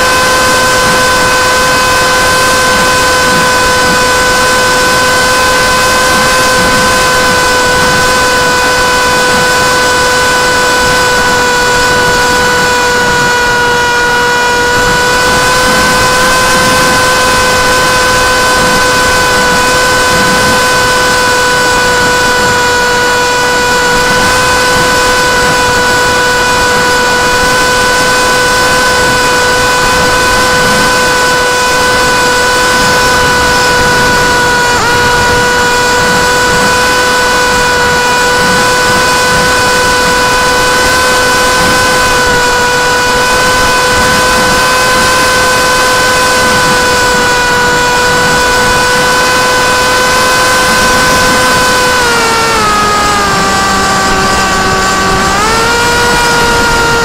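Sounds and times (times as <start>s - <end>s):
electric motor propeller whine: 0.0s - 57.0s.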